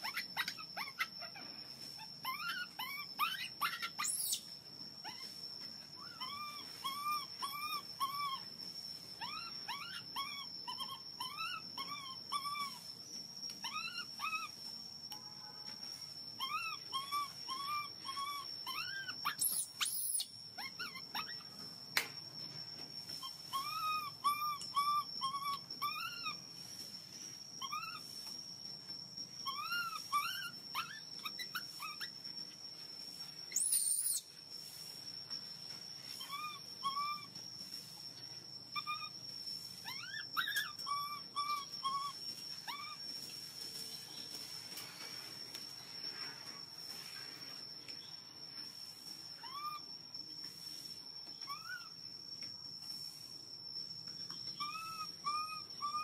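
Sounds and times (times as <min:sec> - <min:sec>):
high-pitched whine: 0:00.0 - 0:56.0
baby monkey crying: 0:02.2 - 0:05.4, 0:16.4 - 0:21.5, 0:33.5 - 0:34.3.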